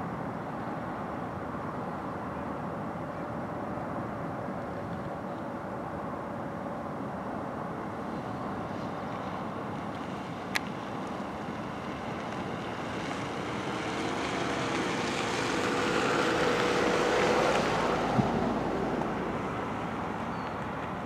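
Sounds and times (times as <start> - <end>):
wind: 0.0 - 21.0
rushing water: 5.0 - 21.0
distant engine humming: 8.3 - 21.0.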